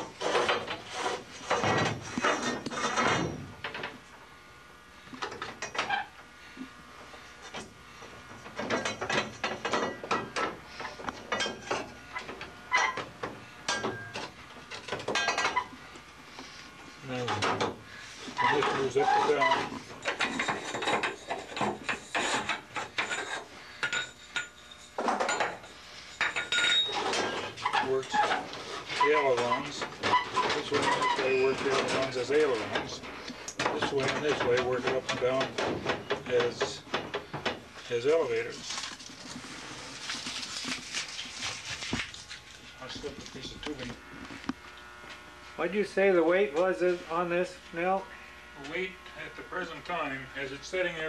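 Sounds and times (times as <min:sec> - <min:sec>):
metallic rattles and scrapes: 0:00.0 - 0:04.0, 0:18.4 - 0:43.6.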